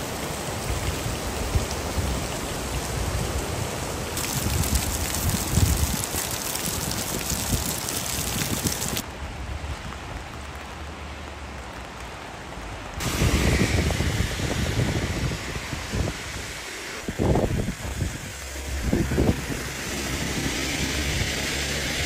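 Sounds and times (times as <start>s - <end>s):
churning floodwater: 0.0s - 22.0s
rain hissing onto water: 0.0s - 22.0s
river rushing: 0.0s - 22.0s
wind buffeting microphone: 4.2s - 9.1s, 13.0s - 21.4s.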